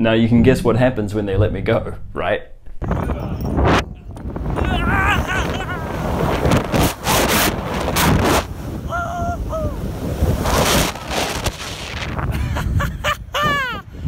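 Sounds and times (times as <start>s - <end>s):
wind rushing over microphone: 2.8s - 14.0s
person crying out: 4.6s - 6.6s, 8.8s - 9.9s, 12.4s - 14.0s.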